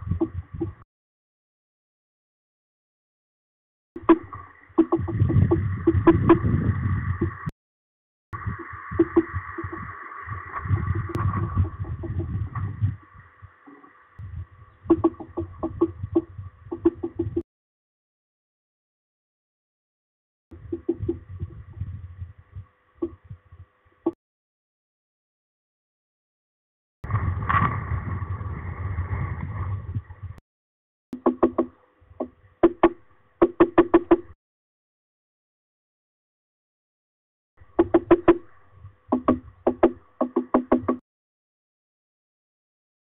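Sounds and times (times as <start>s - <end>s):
low rumbling noise: 4.0s - 7.5s, 8.4s - 17.4s, 20.6s - 23.8s, 27.0s - 30.4s
woodpecker tapping on wood: 14.9s - 17.4s, 31.2s - 34.4s, 37.7s - 41.0s.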